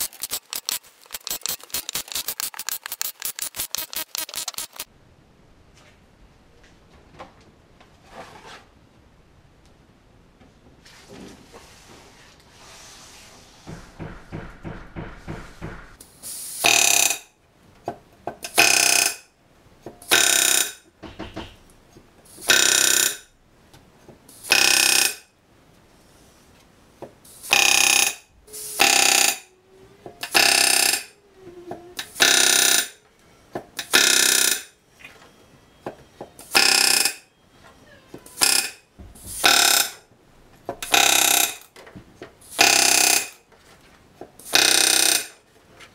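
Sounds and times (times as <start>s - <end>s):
rivet gun rattling bursts: 0.0s - 4.9s.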